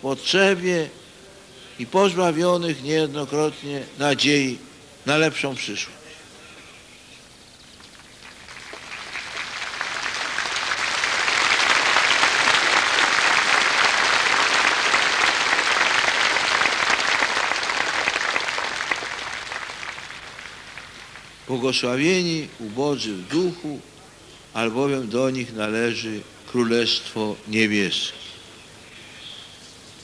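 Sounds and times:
large crowd applauding: 8.1s - 21.8s.

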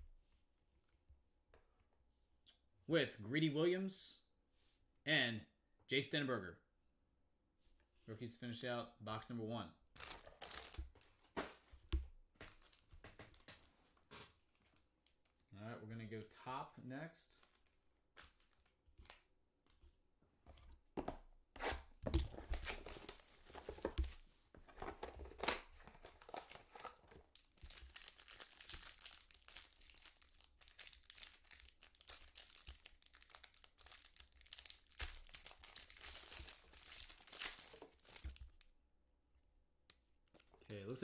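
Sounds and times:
plastic wrapper crackling: 10.0s - 11.2s, 26.0s - 38.7s.

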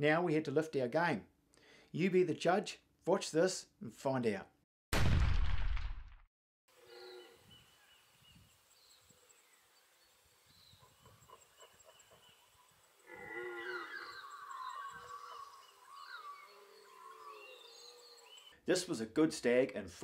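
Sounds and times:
deer stag roaring: 13.0s - 14.3s.

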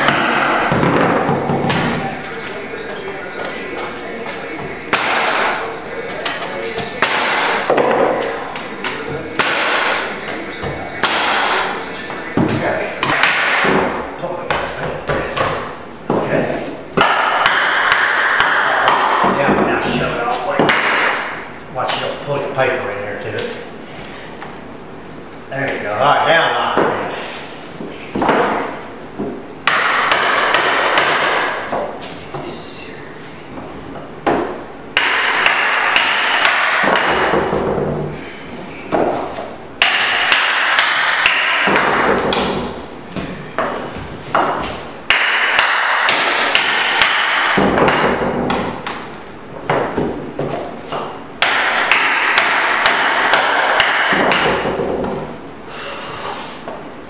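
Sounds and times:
hammer knocking on floorboards: 39.8s - 49.0s.

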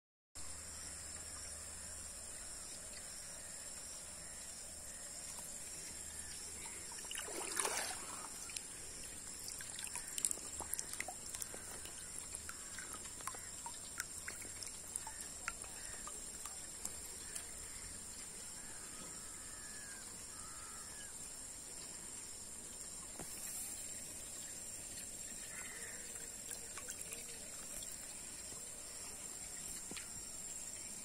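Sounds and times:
water splashing and draining: 5.0s - 19.2s, 22.3s - 31.0s.

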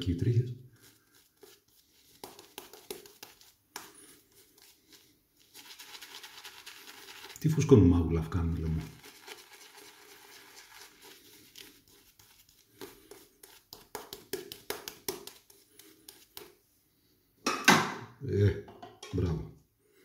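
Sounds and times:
shaving brush scratching on skin: 0.8s - 7.4s, 8.2s - 16.5s.

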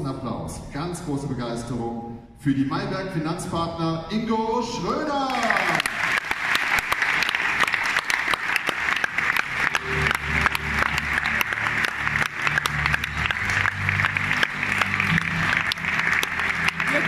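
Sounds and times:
audience applause: 5.2s - 17.0s.

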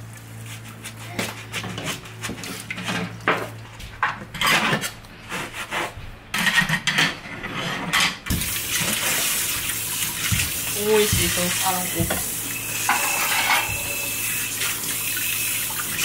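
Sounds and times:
tap water running: 8.3s - 16.0s
dishes clinking in metal sink: 10.3s - 14.2s.

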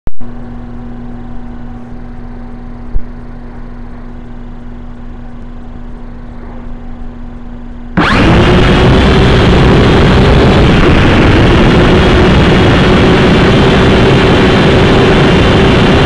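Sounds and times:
quadcopter humming: 8.0s - 16.0s.

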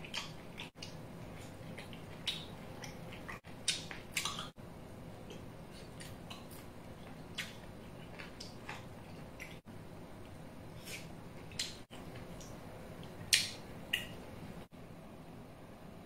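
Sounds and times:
person chewing food: 0.0s - 14.2s
steady low hum: 0.0s - 16.0s
wet mouth smacks and clicks: 1.9s - 4.5s.

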